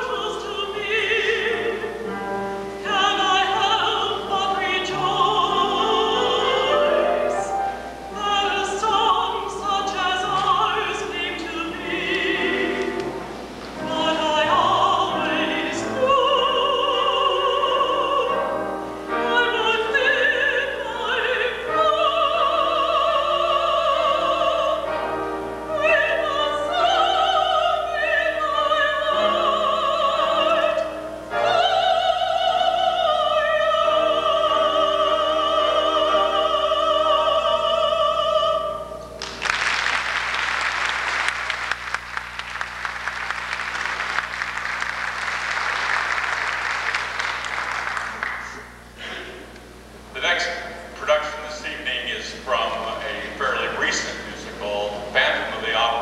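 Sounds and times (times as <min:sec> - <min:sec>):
woman singing slow song: 0:00.0 - 0:39.2
audience applauding: 0:39.2 - 0:48.8.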